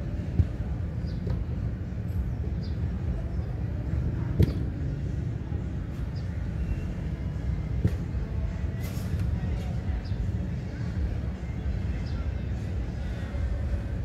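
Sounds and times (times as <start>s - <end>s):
steady low rumble: 0.0s - 14.0s.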